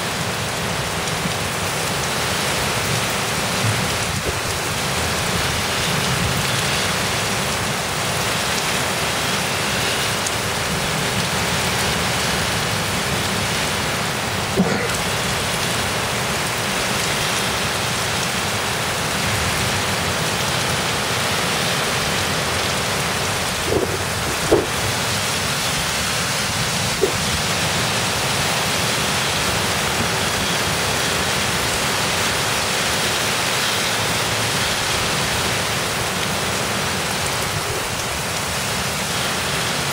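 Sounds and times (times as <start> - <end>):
heavy wind-driven rain: 0.0 - 39.9
sharp knocks: 14.6 - 15.0, 23.7 - 24.7.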